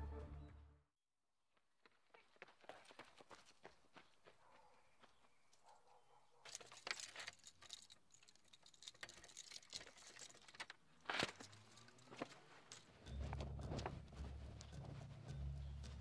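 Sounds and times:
keys jangling in door lock: 0:06.4 - 0:12.9.

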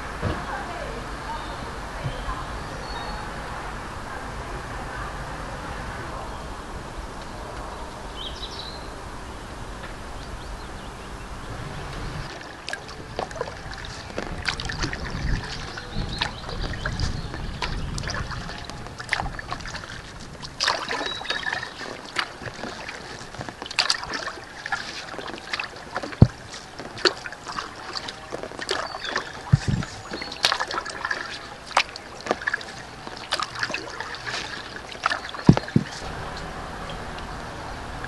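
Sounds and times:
paddle splashing water: 0:11.6 - 0:38.0
paddle knocks: 0:12.3 - 0:37.3.

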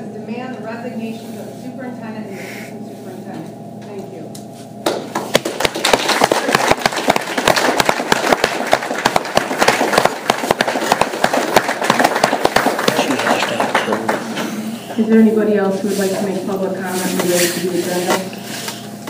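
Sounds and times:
audience applauding: 0:05.4 - 0:14.4.

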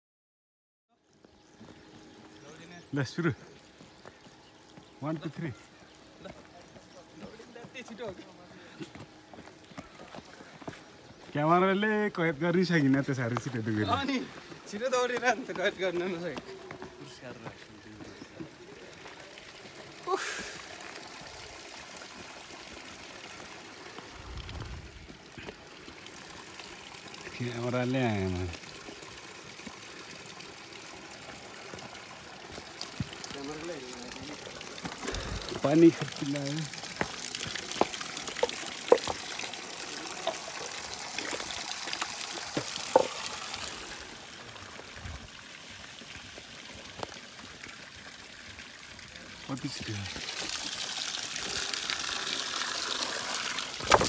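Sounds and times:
running water: 0:01.0 - 0:54.0
water drops splashing: 0:32.5 - 0:44.0.

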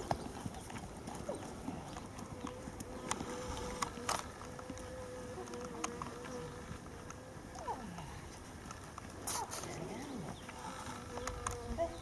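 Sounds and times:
horse hoofbeats on sand: 0:00.0 - 0:02.9.

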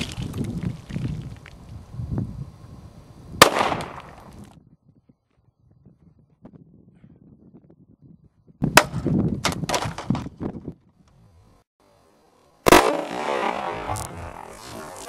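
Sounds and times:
pistol shots: 0:03.4 - 0:04.0, 0:12.7 - 0:13.8.

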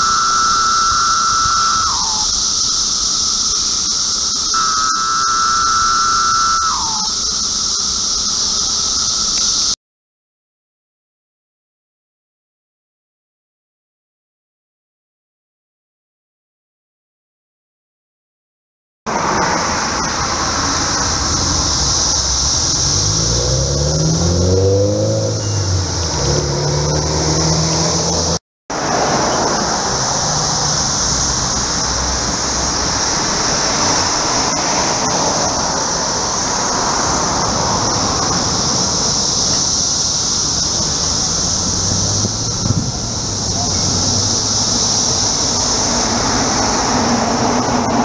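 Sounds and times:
cicada chorus drone: 0:00.0 - 0:09.8, 0:19.1 - 0:48.0
traffic noise: 0:00.0 - 0:09.8, 0:19.1 - 0:48.0
car passing: 0:19.1 - 0:48.0.

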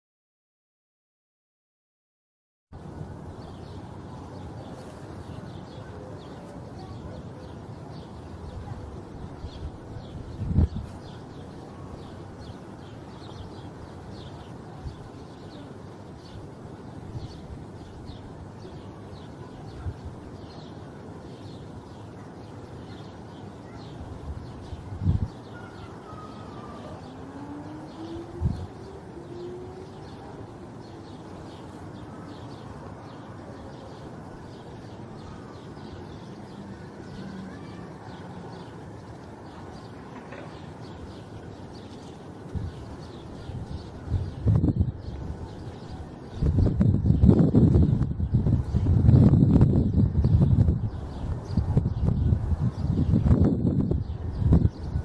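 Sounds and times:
steady background hiss: 0:02.8 - 0:46.6
small birds chirping: 0:03.2 - 0:55.0.

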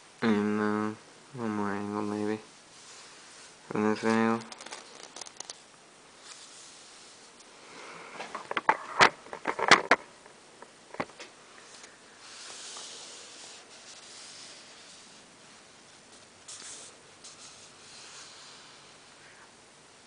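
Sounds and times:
soft hiss: 0:00.0 - 0:08.7, 0:10.1 - 0:20.0
clicks and knocks on a desk: 0:08.3 - 0:10.1.

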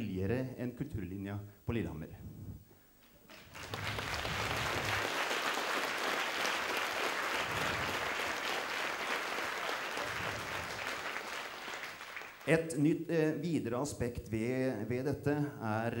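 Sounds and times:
audience applauding: 0:03.3 - 0:12.6.

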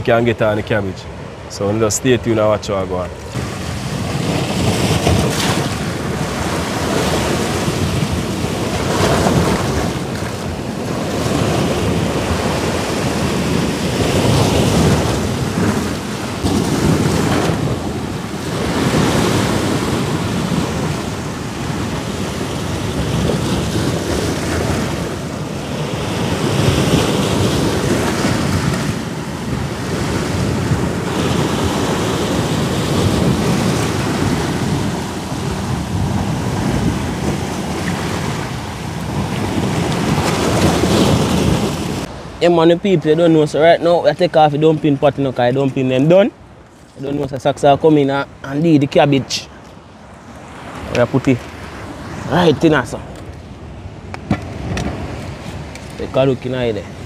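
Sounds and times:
wind buffeting the microphone: 0:00.0 - 0:42.4
waves breaking on rocks: 0:01.2 - 0:57.0.

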